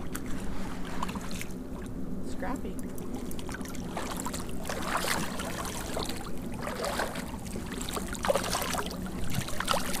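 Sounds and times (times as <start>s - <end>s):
fish splashing in water: 3.0s - 10.0s.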